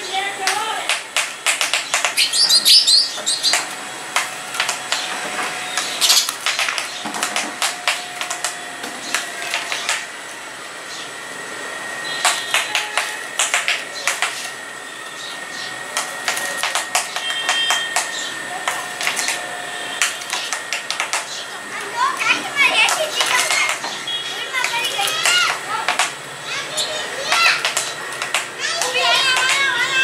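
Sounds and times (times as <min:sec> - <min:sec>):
beaks pecking taps on mirror: 0:00.4 - 0:05.1, 0:20.0 - 0:21.4, 0:27.3 - 0:29.7
sparrows chirping: 0:01.8 - 0:03.8, 0:04.9 - 0:07.2.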